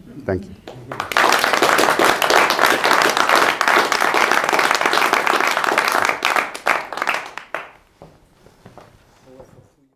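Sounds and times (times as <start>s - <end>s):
audience applauding: 0.7s - 7.8s.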